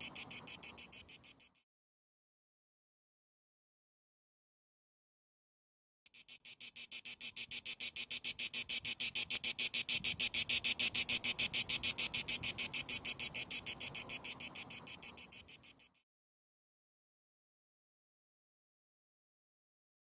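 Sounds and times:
cicada singing: 0:00.0 - 0:01.6, 0:06.1 - 0:16.0.

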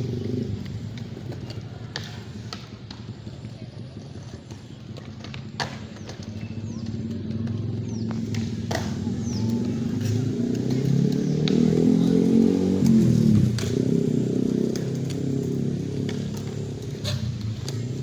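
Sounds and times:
skateboards clacking on concrete: 0:00.0 - 0:18.0
vehicle engine passing by: 0:06.7 - 0:18.0.

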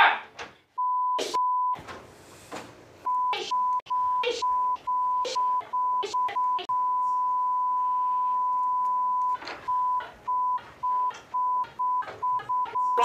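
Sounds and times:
censor bleep tone: 0:03.1 - 0:13.0.

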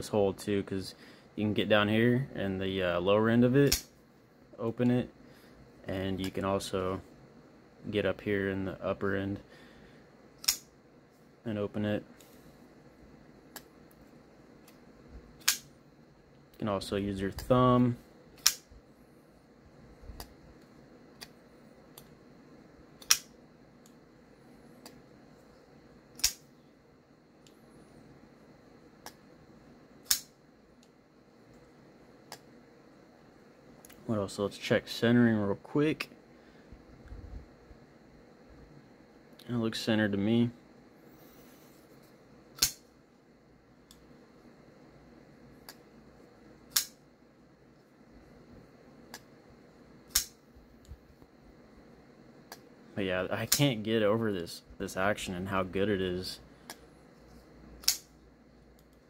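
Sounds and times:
folding knife blade clicking: 0:26.2 - 0:26.4, 0:42.6 - 0:42.8, 0:46.7 - 0:47.0, 0:57.8 - 0:58.1.

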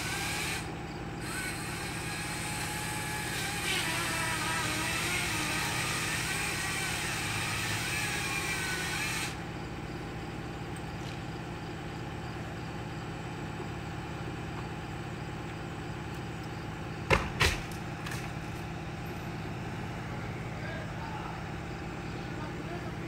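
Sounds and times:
truck engine idling: 0:00.0 - 0:23.0
sharp knocks: 0:17.1 - 0:17.8.

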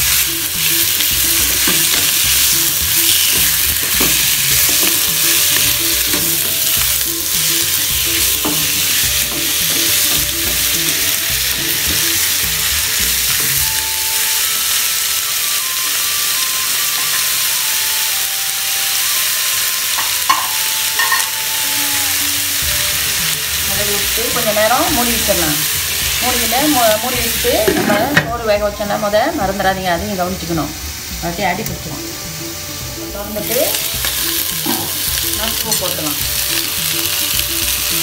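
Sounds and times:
chicken sizzling in hot oil: 0:00.0 - 0:38.0
wooden spatula scraping pan: 0:27.6 - 0:28.2.

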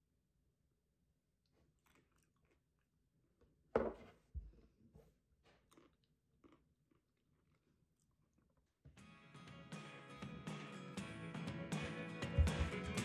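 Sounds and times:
bowl knocking on wooden table: 0:03.8 - 0:04.0.

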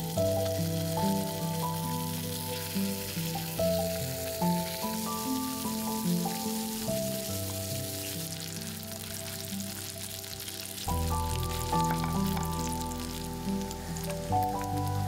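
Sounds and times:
background music melody: 0:00.0 - 0:15.0
sausage sizzling in a pan: 0:00.0 - 0:15.0.

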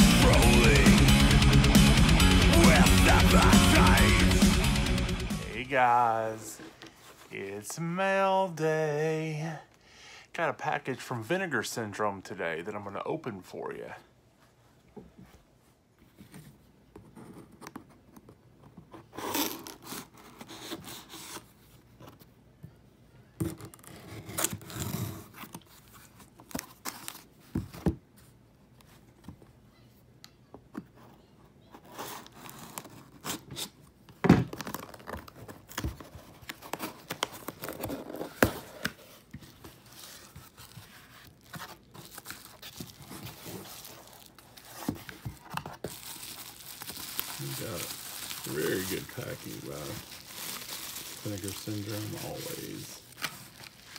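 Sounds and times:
tape and cardboard tearing: 0:19.1 - 0:21.4
bubble wrap crinkling: 0:34.5 - 0:53.9.

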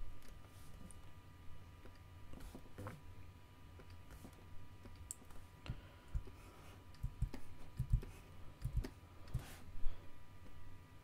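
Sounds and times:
faint electrical hum: 0:00.0 - 0:11.0
computer mouse clicks: 0:06.9 - 0:09.5.

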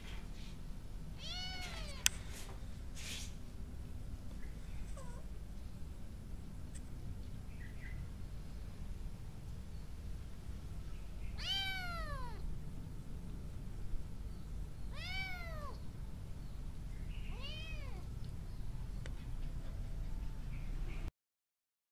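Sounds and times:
kitten meowing: 0:01.2 - 0:02.1, 0:04.9 - 0:05.3, 0:11.3 - 0:12.4, 0:14.9 - 0:15.8, 0:17.3 - 0:18.1.

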